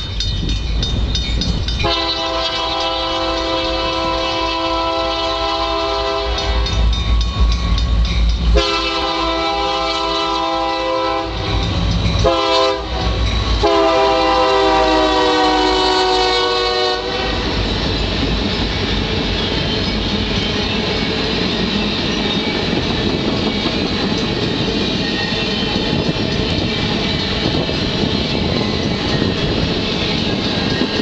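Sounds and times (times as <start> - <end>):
low locomotive rumble: 0.0 - 31.0
train running on rails: 0.0 - 31.0
locomotive air horn blasts: 1.8 - 6.8, 8.5 - 17.5.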